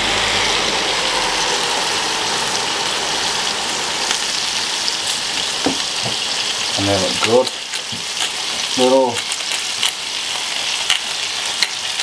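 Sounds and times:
low hum: 0:00.0 - 0:06.7
mushrooms sizzling on a grill: 0:00.0 - 0:12.0.

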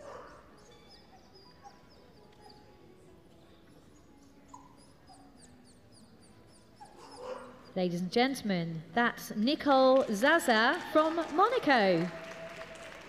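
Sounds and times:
distant dog whimpers and yelps: 0:00.0 - 0:03.2, 0:03.8 - 0:07.9.

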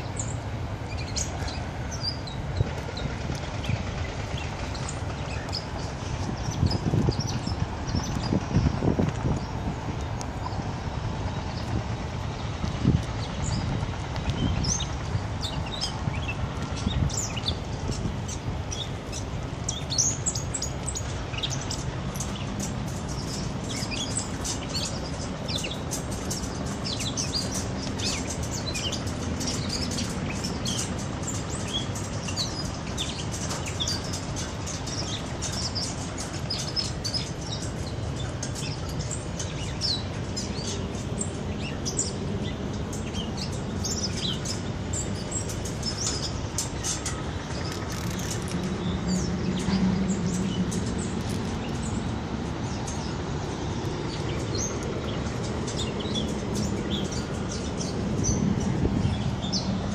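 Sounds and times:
songbirds chirping: 0:00.0 - 0:59.9
steady low rumble: 0:00.0 - 0:59.9.

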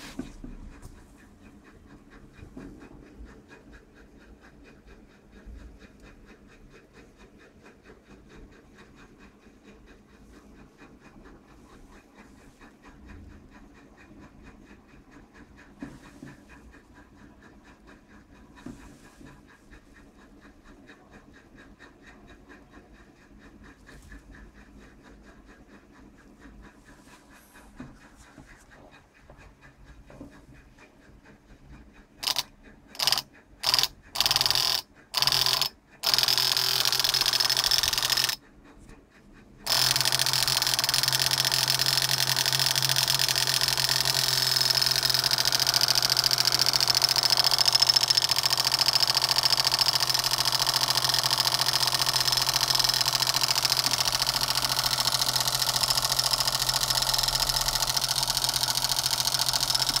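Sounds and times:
small electric motor whirring: 0:32.2 - 0:38.4, 0:39.6 - 1:00.0.

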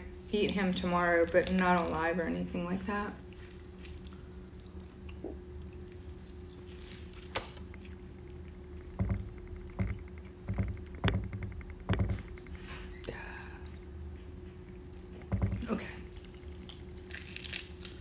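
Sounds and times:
steady low hum: 0:00.0 - 0:18.0
dull knocks and thumps: 0:08.9 - 0:12.6, 0:15.2 - 0:15.9.

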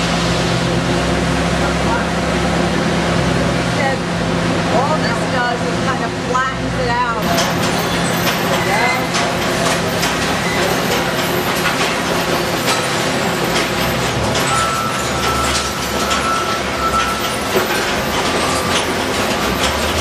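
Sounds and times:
conveyor machinery running: 0:00.0 - 0:20.0
recyclables clattering: 0:07.2 - 0:20.0.

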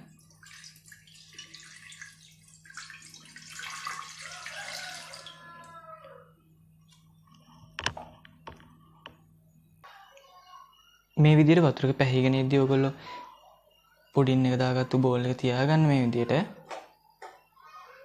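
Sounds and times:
water pouring into a pan: 0:00.1 - 0:05.7.

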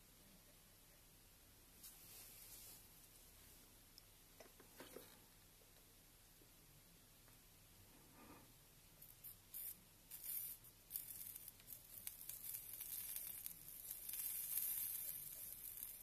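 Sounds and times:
solder flux sizzling: 0:07.9 - 0:16.0.

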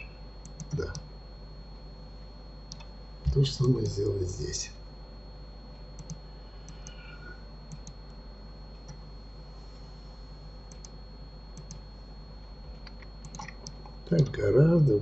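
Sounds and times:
faint electrical hum: 0:00.0 - 0:15.0
computer mouse clicking: 0:00.4 - 0:01.1, 0:02.7 - 0:02.9, 0:06.0 - 0:07.0, 0:07.7 - 0:08.1, 0:10.7 - 0:11.0, 0:11.6 - 0:11.9, 0:12.8 - 0:14.4.

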